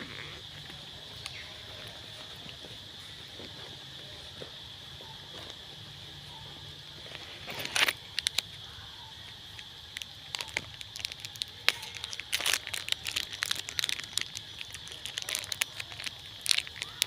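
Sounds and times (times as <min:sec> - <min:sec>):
high insect-like drone: 0:00.0 - 0:17.0
plastic wrapper crinkling: 0:07.5 - 0:08.5, 0:09.9 - 0:17.0.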